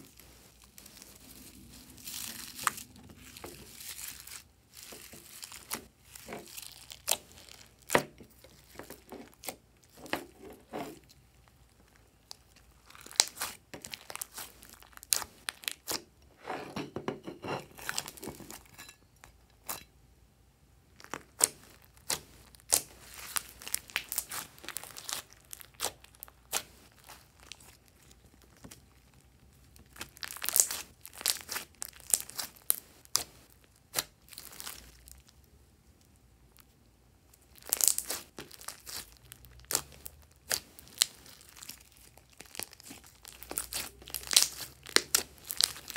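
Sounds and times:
slime squeezed by hand crackling: 0:11.8 - 0:16.0, 0:21.0 - 0:35.3, 0:37.4 - 0:45.9.

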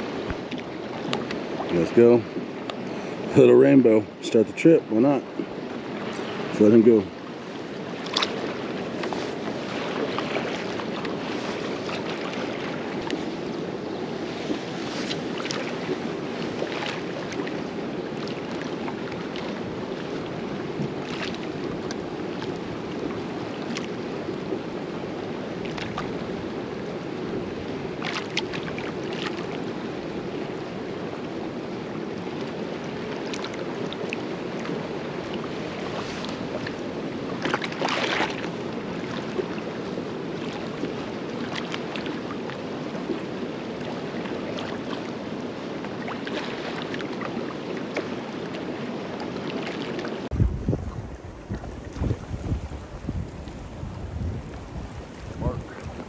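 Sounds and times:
waves slapping against hull: 0:00.0 - 0:56.0
short water splashes: 0:07.8 - 0:24.0, 0:33.1 - 0:39.7, 0:43.8 - 0:45.1, 0:45.9 - 0:48.6, 0:49.5 - 0:56.0
wind rushing: 0:50.3 - 0:56.0.

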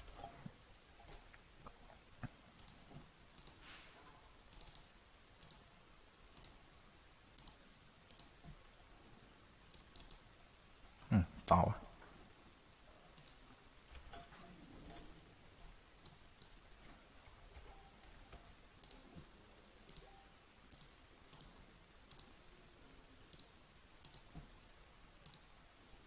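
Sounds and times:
computer mouse clicks: 0:01.0 - 0:03.6, 0:04.5 - 0:05.7, 0:06.3 - 0:06.6, 0:07.3 - 0:08.6, 0:09.7 - 0:10.2, 0:13.1 - 0:15.2, 0:16.0 - 0:19.2, 0:19.9 - 0:22.4, 0:23.3 - 0:24.5, 0:25.2 - 0:25.6.

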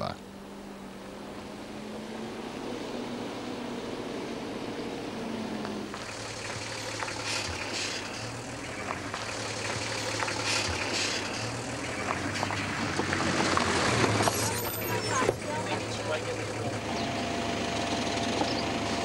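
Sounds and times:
car engine hum: 0:00.0 - 0:19.0
tyres on loose gravel: 0:05.6 - 0:17.3.

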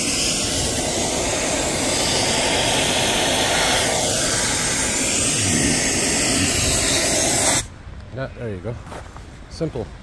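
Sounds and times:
compressed air hissing from hose: 0:00.0 - 0:07.7.

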